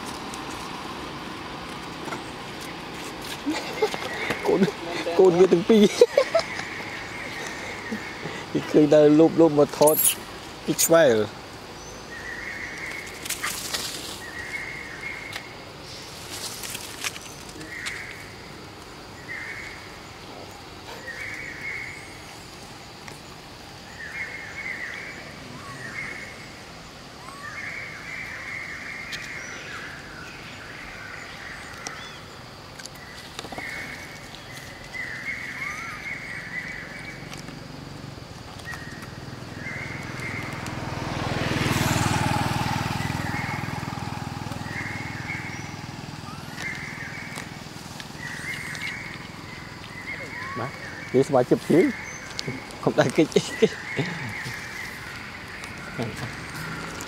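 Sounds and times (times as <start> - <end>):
birds chirping: 0.0 - 57.0
vehicle passing: 39.0 - 57.0.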